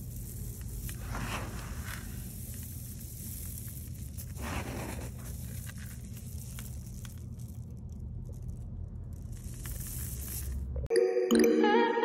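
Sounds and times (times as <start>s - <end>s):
rush of falling grain: 0.0s - 7.7s, 9.3s - 10.6s
grain rustling and clicking: 0.0s - 10.9s.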